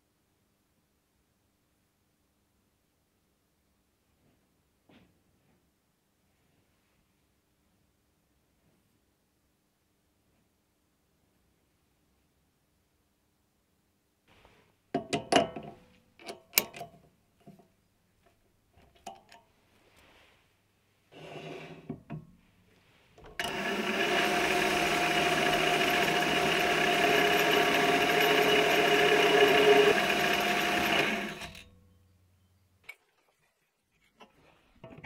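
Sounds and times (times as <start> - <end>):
lathe motor whine: 23.3 - 31.7.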